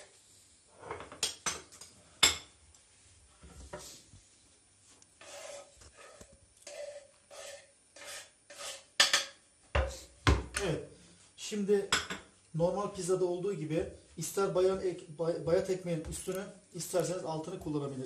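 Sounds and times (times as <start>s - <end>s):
cheese scraped off cutting board: 5.2s - 8.9s.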